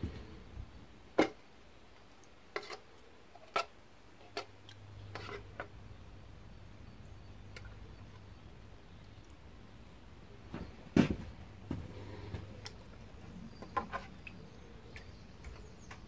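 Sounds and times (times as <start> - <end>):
faint low hum: 4.0 - 16.0.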